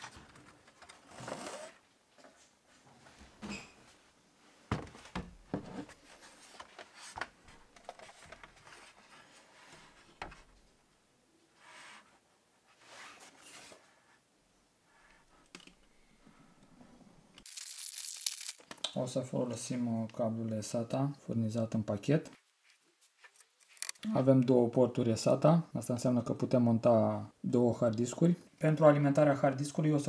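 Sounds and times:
plastic bag crinkling: 0:17.4 - 0:18.8, 0:23.6 - 0:24.0
soft rustles: 0:22.4 - 0:23.8.

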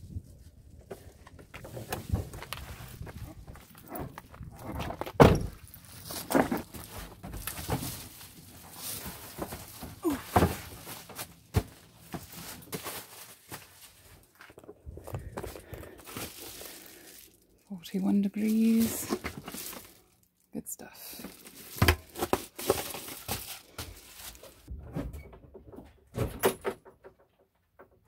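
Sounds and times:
footsteps: 0:00.8 - 0:17.3.

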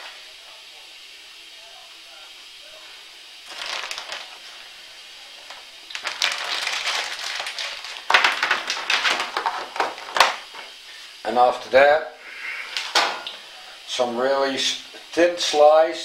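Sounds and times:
food packaging crinkling: 0:03.4 - 0:04.7, 0:05.3 - 0:10.8.

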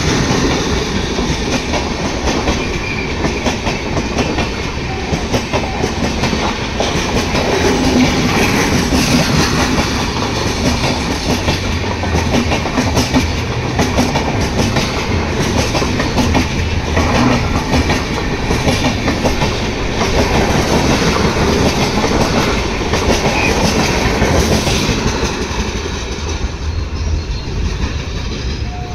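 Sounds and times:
train wheels clattering over rail joints: 0:00.0 - 0:28.8.

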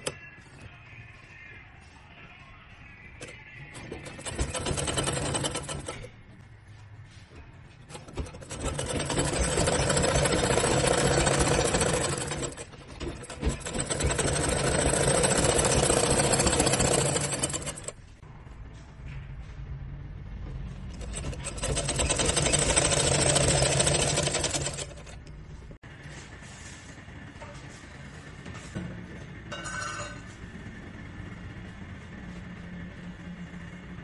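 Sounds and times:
sewing machine stitching: 0:03.2 - 0:06.1, 0:07.9 - 0:18.0, 0:20.8 - 0:25.3.

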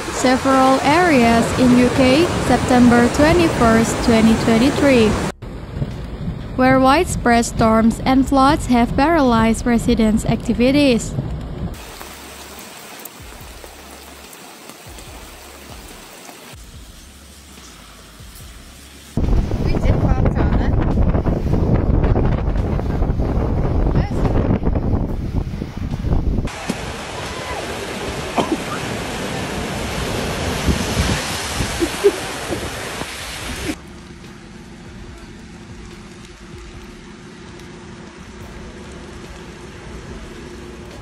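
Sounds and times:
heavy rain on street: 0:00.0 - 0:07.4, 0:11.3 - 0:24.3, 0:26.1 - 0:41.0
floodwater rushing and splashing: 0:00.0 - 0:09.5, 0:10.6 - 0:20.2, 0:21.0 - 0:41.0
low drone: 0:33.6 - 0:41.0.

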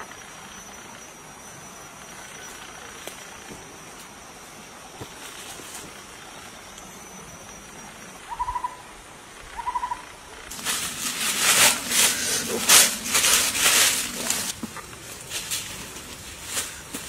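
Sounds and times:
rustling of dry leaf litter: 0:10.5 - 0:17.0.

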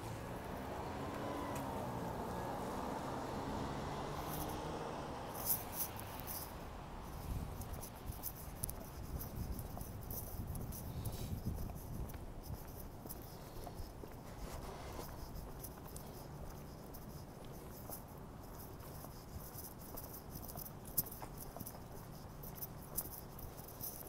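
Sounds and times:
low city street rumble: 0:00.0 - 0:24.0.

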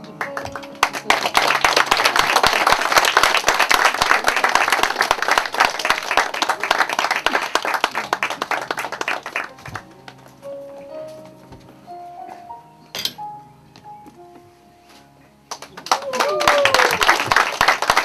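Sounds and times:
audience applauding: 0:00.0 - 0:10.3, 0:15.5 - 0:18.0.

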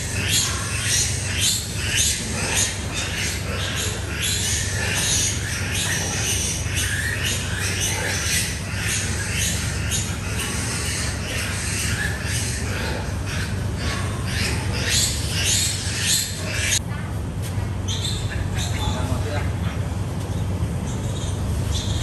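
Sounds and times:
piglets squealing: 0:00.0 - 0:16.8.

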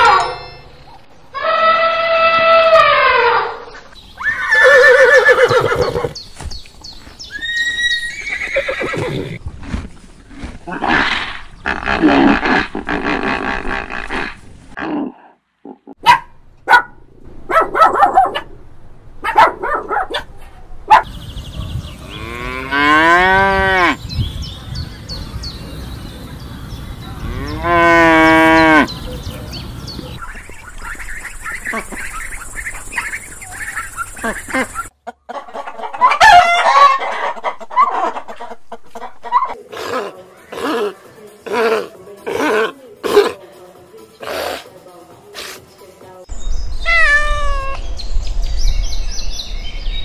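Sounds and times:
cattle mooing: 0:27.2 - 0:28.9.

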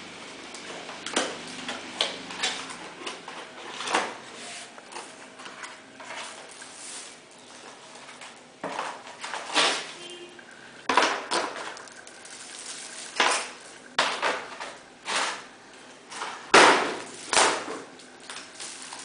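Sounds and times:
plastic and cardboard rustling: 0:02.2 - 0:10.1.

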